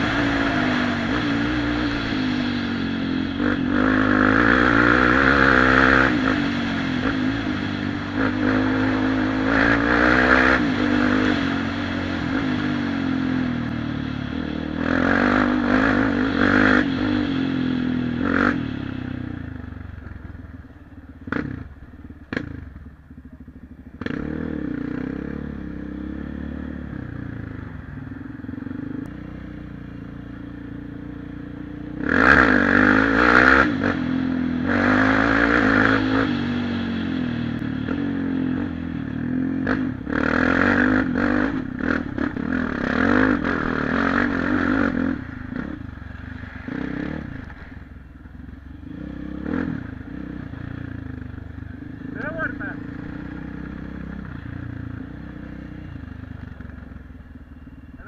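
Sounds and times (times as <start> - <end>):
quad-bike engine revving: 0.0 - 19.6, 21.2 - 22.9, 23.9 - 27.7, 30.7 - 46.0, 48.7 - 57.0.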